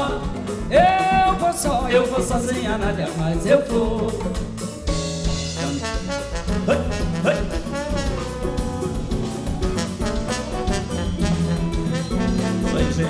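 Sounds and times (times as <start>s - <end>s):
live samba band playing: 0.0s - 13.0s
trombone melody: 5.1s - 13.0s.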